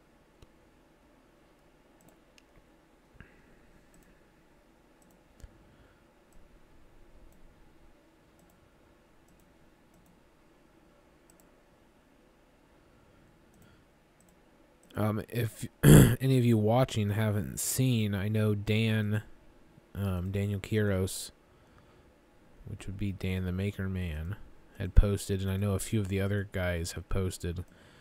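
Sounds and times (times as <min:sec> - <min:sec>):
computer mouse clicks: 0:02.0 - 0:02.7, 0:03.9 - 0:04.2, 0:05.0 - 0:05.5, 0:08.4 - 0:08.6, 0:09.2 - 0:10.2, 0:11.2 - 0:11.5, 0:13.5 - 0:15.0.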